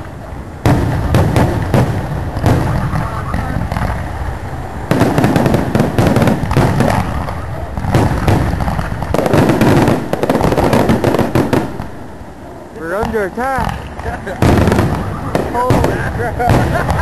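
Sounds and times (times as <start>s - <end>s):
fireworks bursting: 0.0s - 17.0s.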